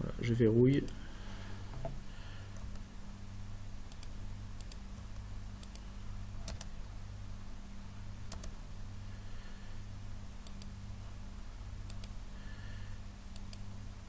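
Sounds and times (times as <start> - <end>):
low electrical hum: 0.0 - 14.0
keyboard and mouse clicks: 6.4 - 6.7, 8.3 - 8.6, 11.9 - 12.2.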